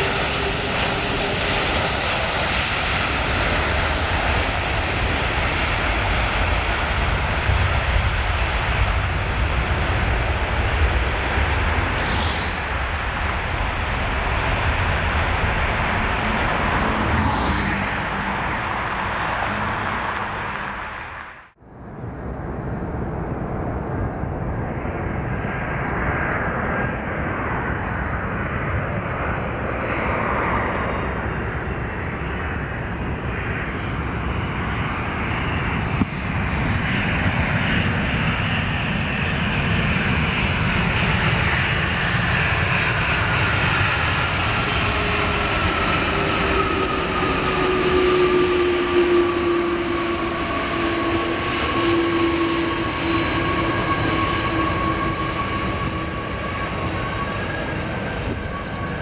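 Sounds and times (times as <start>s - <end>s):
jet engines roaring: 0.0s - 59.0s
engine whine falling in pitch: 43.3s - 59.0s.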